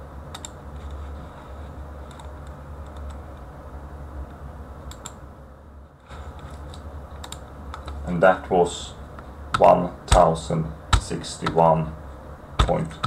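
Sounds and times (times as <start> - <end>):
low electrical hum: 0.0 - 13.0
computer mouse clicks: 0.3 - 1.0, 2.0 - 3.2, 4.9 - 5.2, 6.4 - 8.0.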